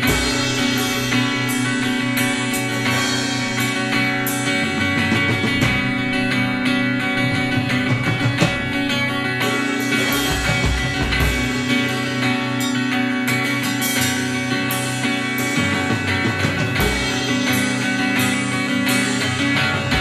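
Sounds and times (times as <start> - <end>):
drum kit: 0.0 - 20.0
guitars: 0.0 - 20.0.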